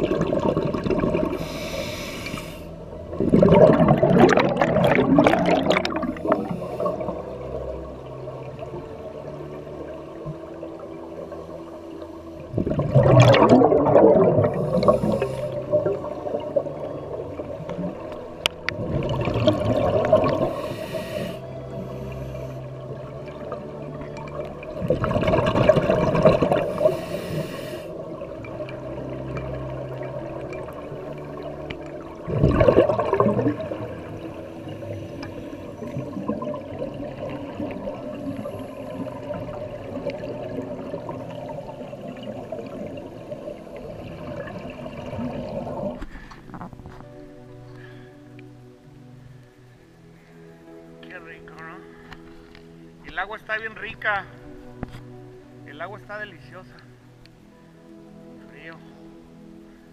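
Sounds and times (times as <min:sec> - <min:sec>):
exhaled bubbles gurgling underwater: 0:00.0 - 0:47.2.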